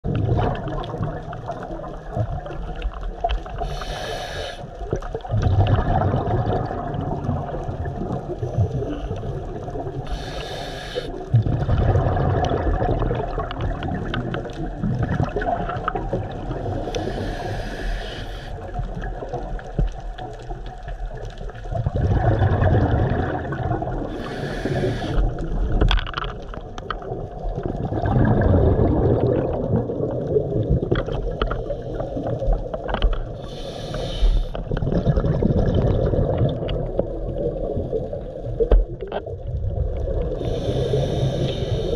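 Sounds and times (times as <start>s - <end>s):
exhaled air bubbling underwater: 0.0s - 41.9s
regulator inhalation hiss: 3.6s - 4.8s, 10.1s - 11.2s, 16.8s - 18.6s, 24.1s - 25.3s, 33.4s - 34.6s, 40.4s - 41.9s.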